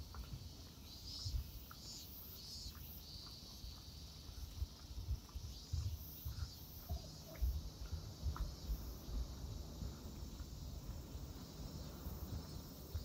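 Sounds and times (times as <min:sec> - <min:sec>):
cicadas singing: 0:00.0 - 0:13.0
irregular low thuds: 0:02.4 - 0:13.0.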